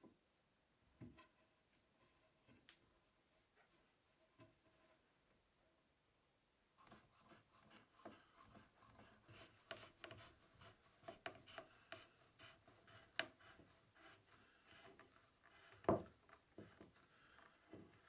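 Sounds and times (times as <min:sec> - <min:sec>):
wooden blocks scraping a board: 0:06.8 - 0:18.0
wood knock: 0:15.8 - 0:16.1.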